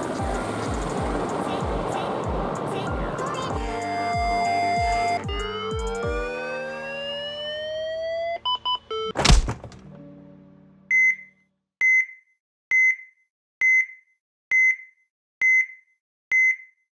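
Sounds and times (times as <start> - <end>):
rising synthesized tones: 0.0 - 9.2
heart-monitor style beep: 8.4 - 9.2, 10.9 - 16.9
heavy impact hit ringing out: 9.2 - 10.0.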